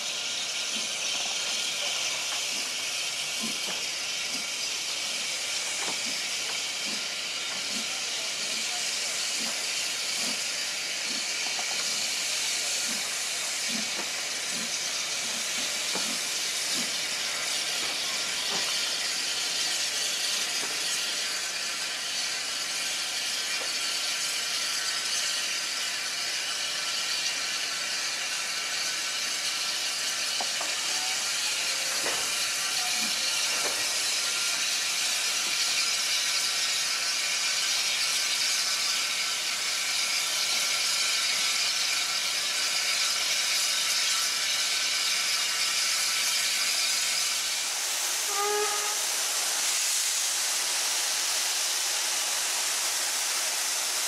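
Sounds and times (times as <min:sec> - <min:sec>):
steam locomotive hissing: 0:00.0 - 0:54.0
light clanks from coaches: 0:05.6 - 0:12.2, 0:12.8 - 0:19.1, 0:31.9 - 0:34.2.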